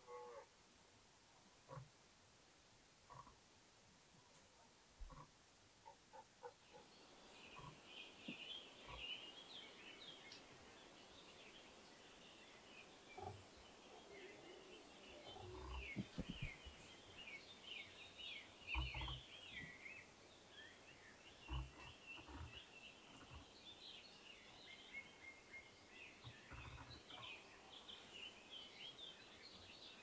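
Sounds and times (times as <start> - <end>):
small birds chirping: 5.0 - 30.0
low dull thumps: 15.9 - 16.6.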